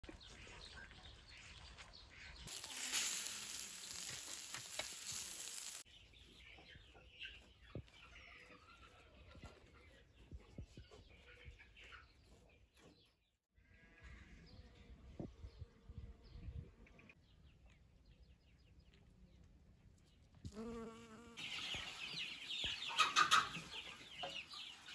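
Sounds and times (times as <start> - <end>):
steady hiss: 2.5 - 5.8.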